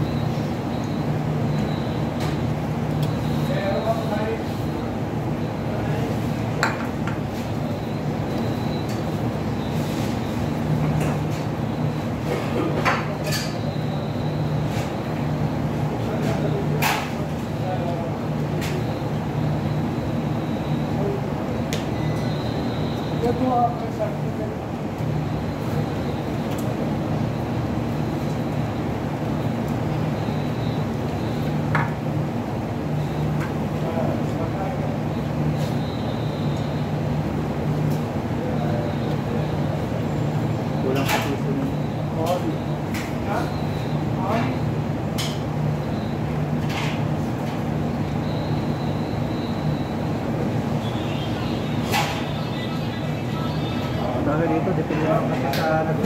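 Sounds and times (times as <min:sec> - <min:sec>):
room machinery hum: 0:00.0 - 0:56.0.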